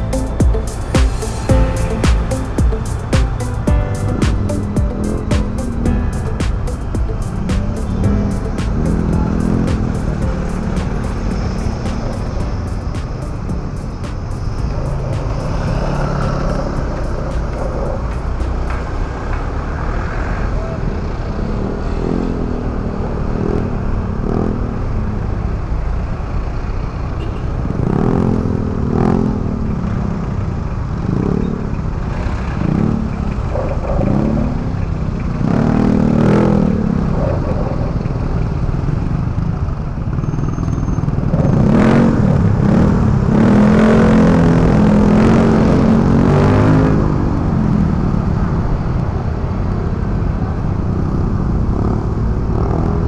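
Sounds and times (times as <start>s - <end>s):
motorcycle engine running: 0.0s - 19.8s.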